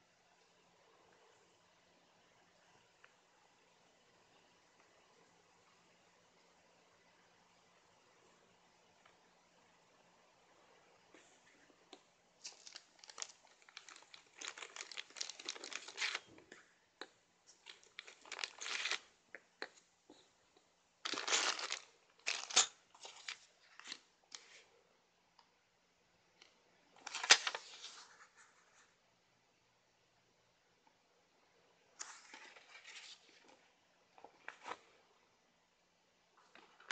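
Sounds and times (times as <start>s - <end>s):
plastic packaging crinkling: 12.4s - 16.4s, 17.6s - 19.1s, 21.0s - 24.5s, 27.0s - 28.0s.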